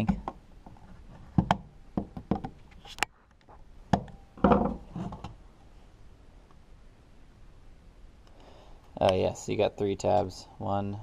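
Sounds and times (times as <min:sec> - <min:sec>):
heavy thumps on bench: 0:03.9 - 0:04.9.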